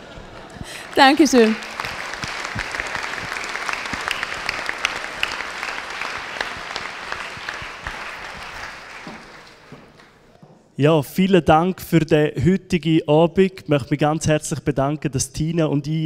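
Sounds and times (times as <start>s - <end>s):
crowd applauding: 0.0s - 10.3s.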